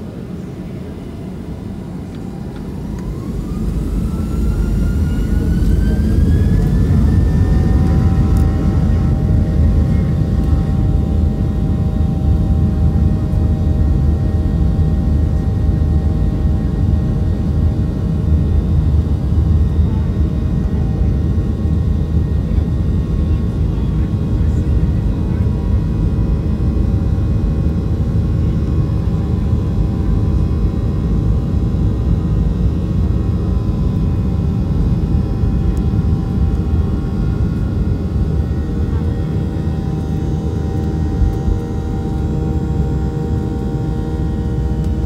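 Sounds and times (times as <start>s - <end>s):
jet engines roaring: 0.0s - 13.5s
jet engine whine: 0.0s - 45.0s.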